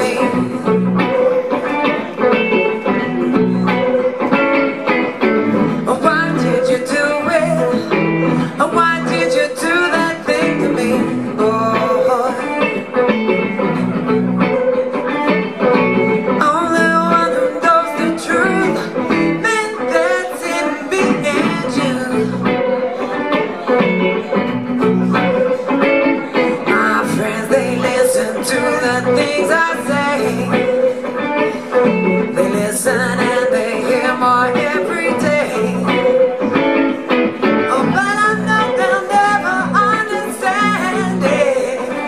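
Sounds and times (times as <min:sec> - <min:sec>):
woman singing: 0:00.0 - 0:02.5, 0:05.6 - 0:13.5, 0:16.3 - 0:23.4, 0:25.0 - 0:36.6, 0:37.5 - 0:42.0
electric guitar: 0:00.0 - 0:42.0.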